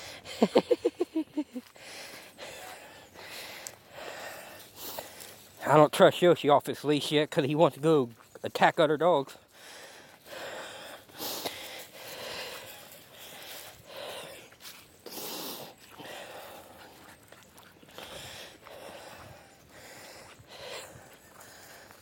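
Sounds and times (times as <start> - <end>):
person breathing through mouth: 1.7 - 5.4, 9.5 - 17.2, 17.8 - 22.0.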